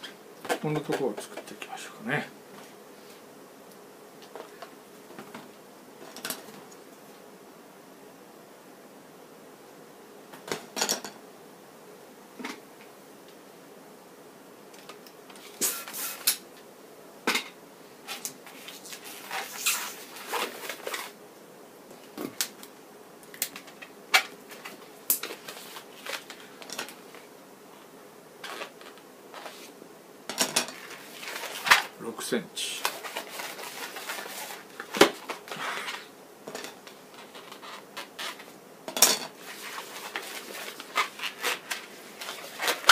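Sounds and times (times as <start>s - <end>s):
balloon rubber squeaking: 19.2s - 20.5s.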